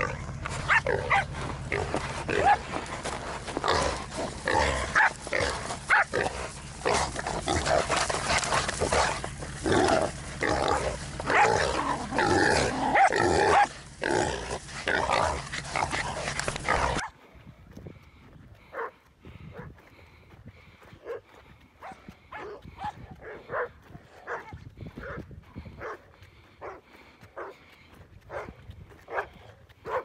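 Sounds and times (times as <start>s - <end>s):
dogs growling and barking: 0.0s - 17.2s, 28.3s - 30.0s.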